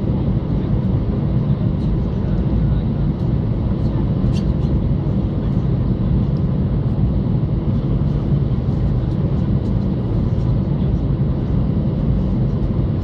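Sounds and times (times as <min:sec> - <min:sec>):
airplane cabin rumble: 0:00.0 - 0:13.0.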